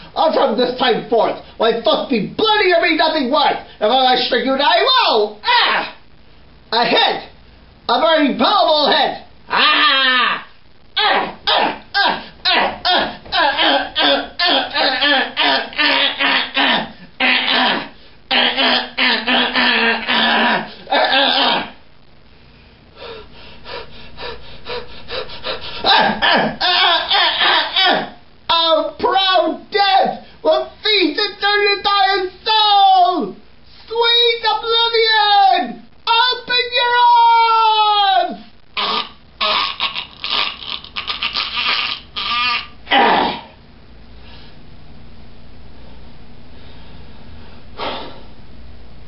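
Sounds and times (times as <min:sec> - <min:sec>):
steady low hiss: 0:00.0 - 0:49.0
wavering cry: 0:05.4 - 0:06.0, 0:09.5 - 0:21.8, 0:23.6 - 0:28.7, 0:36.8 - 0:43.6
person groaning: 0:09.5 - 0:21.8, 0:23.0 - 0:28.2, 0:38.8 - 0:43.6
person rasping gasps: 0:12.0 - 0:13.3.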